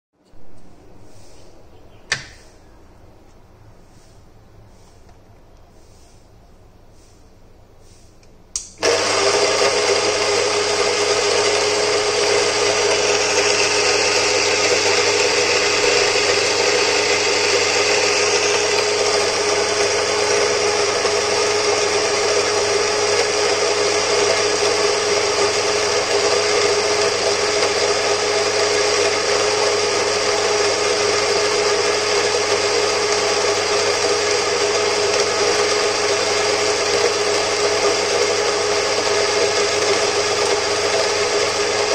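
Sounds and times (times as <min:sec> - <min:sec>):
burrs grinding coffee beans: 0:08.8 - 0:41.9
coffee grinder motor humming: 0:08.8 - 0:41.9.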